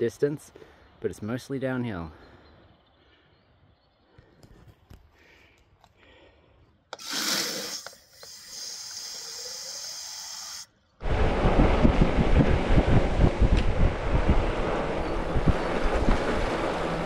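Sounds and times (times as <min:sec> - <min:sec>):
rushing hiss: 0:07.0 - 0:10.7
wind buffeting microphone: 0:11.0 - 0:17.0.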